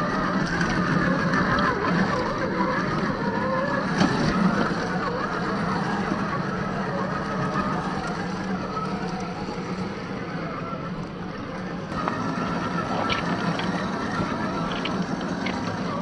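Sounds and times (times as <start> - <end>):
electric motor humming and whining: 0.0 - 16.0
drivetrain clicks: 11.9 - 16.0.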